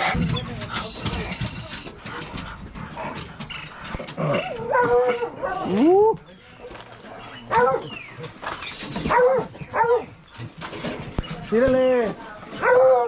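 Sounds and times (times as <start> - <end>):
dogs whining and yelping: 0.0 - 2.2, 3.2 - 6.2, 7.2 - 11.4.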